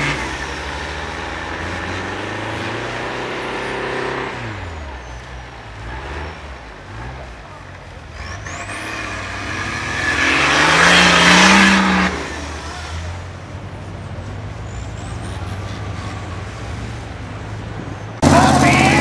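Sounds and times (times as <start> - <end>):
engine revving: 0.0 - 4.8, 8.1 - 13.0, 18.2 - 19.0.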